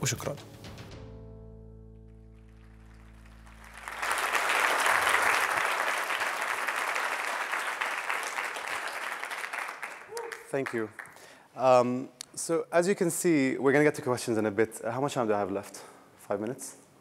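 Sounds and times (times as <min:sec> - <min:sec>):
audience applauding: 0:02.3 - 0:11.3.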